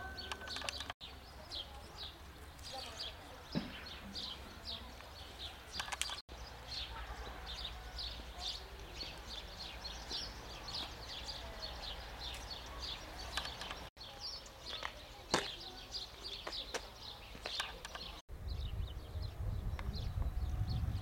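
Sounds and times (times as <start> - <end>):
small birds chirping: 0.0 - 21.0
sharp clicks: 0.3 - 1.0, 5.8 - 6.2
wind rumble on microphone: 18.3 - 21.0.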